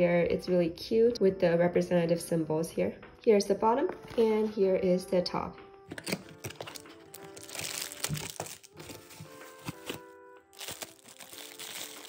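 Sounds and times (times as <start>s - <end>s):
background music: 0.0s - 12.0s
plastic wrap crinkling: 5.9s - 12.0s.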